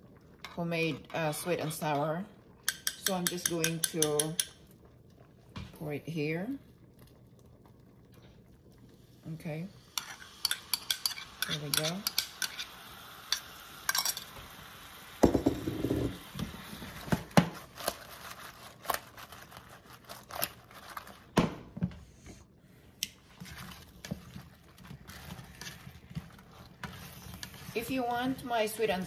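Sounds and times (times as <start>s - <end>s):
metal tongs clicking on pan: 2.7s - 4.6s, 10.4s - 12.6s.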